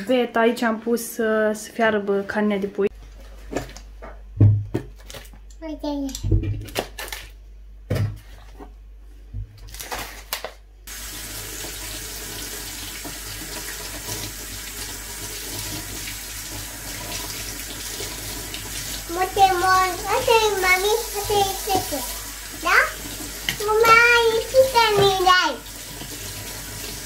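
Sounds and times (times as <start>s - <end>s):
mushrooms rinsed by hand: 10.9s - 27.0s.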